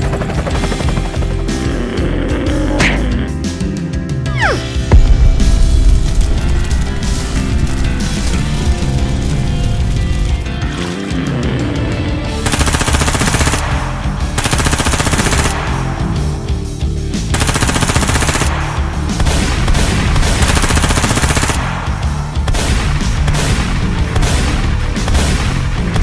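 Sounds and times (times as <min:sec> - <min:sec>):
machine-gun fire bursts: 0:00.0 - 0:01.6, 0:12.4 - 0:16.1, 0:17.3 - 0:26.0
background music: 0:00.0 - 0:26.0.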